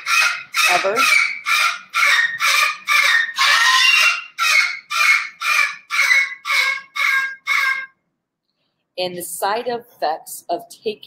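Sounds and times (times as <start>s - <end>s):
bird squawking calls: 0.0s - 8.0s.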